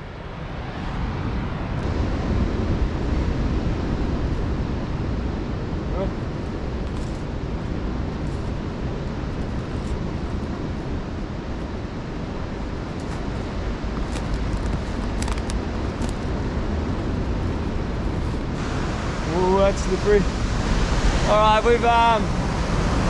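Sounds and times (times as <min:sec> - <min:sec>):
wind rumble on microphone: 0:00.0 - 0:23.0
ocean surf breaking: 0:15.0 - 0:23.0.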